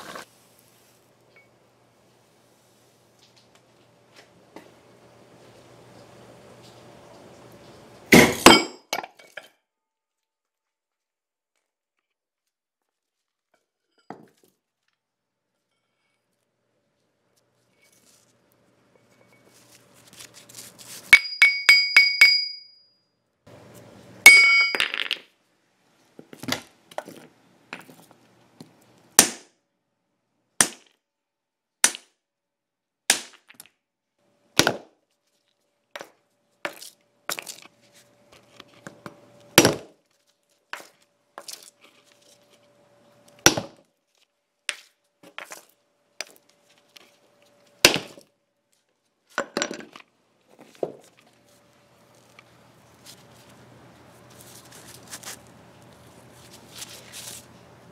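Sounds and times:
frozen puck clinking on concrete: 0:24.3 - 0:25.3.

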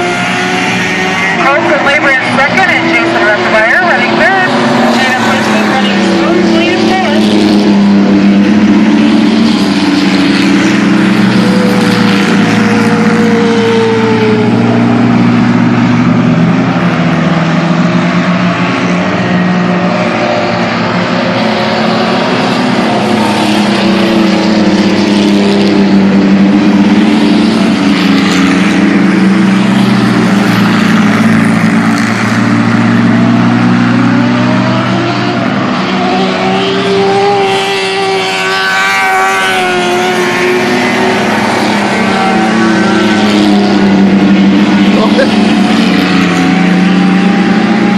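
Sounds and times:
engine revving up: 0:00.0 - 0:47.9
race truck engines running hard: 0:00.0 - 0:47.9.

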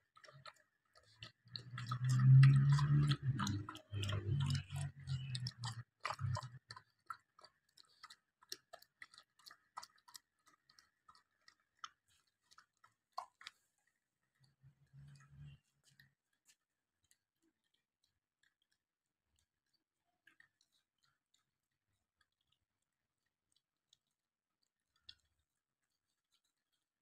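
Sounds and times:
dog chewing food: 0:00.0 - 0:13.8.

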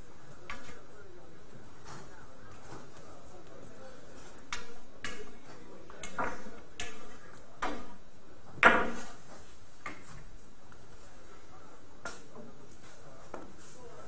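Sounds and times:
billiard balls clacking: 0:08.6 - 0:09.1.

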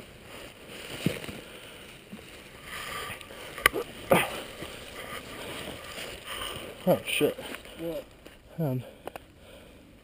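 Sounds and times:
dry leaves rustling and crunching: 0:00.3 - 0:08.1.

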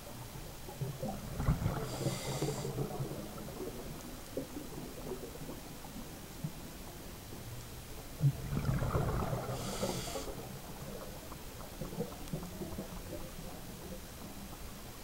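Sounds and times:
low underwater rumble: 0:00.0 - 0:15.0
diver's bubbles gurgling: 0:00.2 - 0:07.1, 0:08.2 - 0:14.8
brief hiss: 0:09.6 - 0:10.4.

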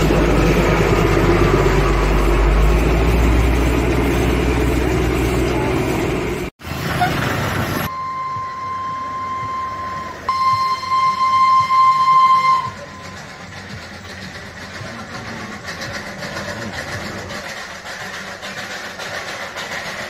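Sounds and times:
road traffic rumble: 0:00.0 - 0:20.0
high-pitched horn blasts: 0:07.9 - 0:13.4.

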